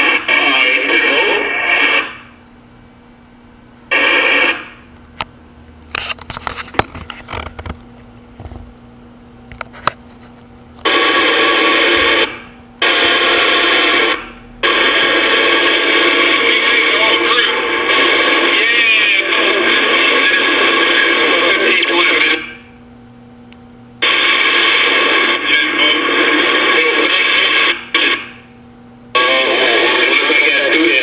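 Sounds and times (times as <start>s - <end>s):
noisy garbled radio transmissions: 0.0s - 2.5s, 3.9s - 4.9s, 5.9s - 7.8s, 9.5s - 22.8s, 24.0s - 31.0s
scattered clicks and knocks: 5.9s - 8.7s.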